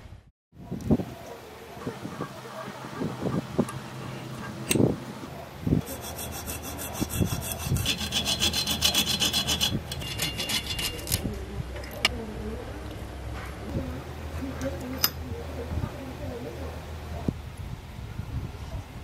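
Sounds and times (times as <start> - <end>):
hacksaw cutting plastic: 5.8 - 11.2.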